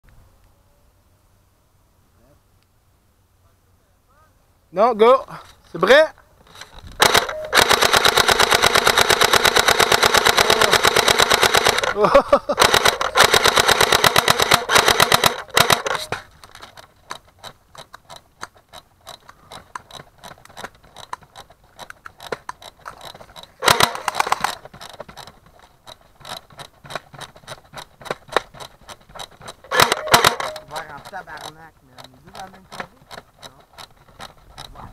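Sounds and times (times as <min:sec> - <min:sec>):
airsoft rifle firing bursts: 0:05.8 - 0:12.0, 0:12.6 - 0:16.8, 0:23.0 - 0:25.3, 0:27.9 - 0:31.5
faint ticks and clicks: 0:12.9 - 0:34.9.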